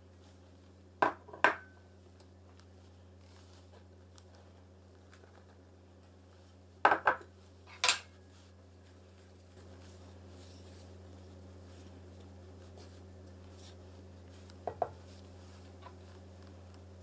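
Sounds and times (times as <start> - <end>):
utensil stirring dry flour: 8.2 - 17.0.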